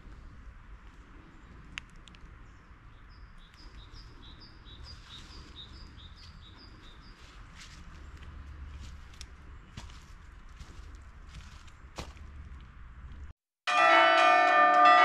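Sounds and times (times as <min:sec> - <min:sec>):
songbird singing: 0:00.0 - 0:13.1
steady low rumble: 0:00.0 - 0:13.3
sharp clicks: 0:01.7 - 0:02.3.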